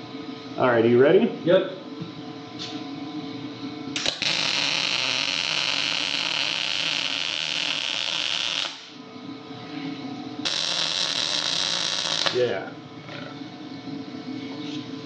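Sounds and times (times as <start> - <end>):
welding arc hiss: 4.0 - 9.0, 10.4 - 12.5.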